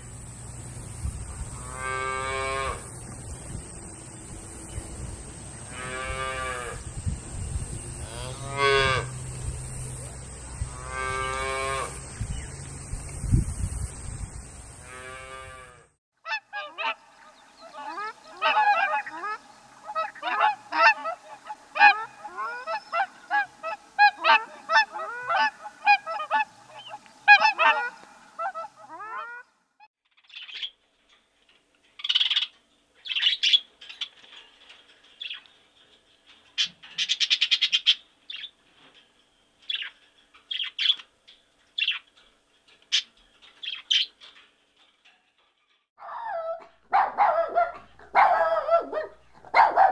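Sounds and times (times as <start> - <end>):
geese honking: 16.2 - 29.5.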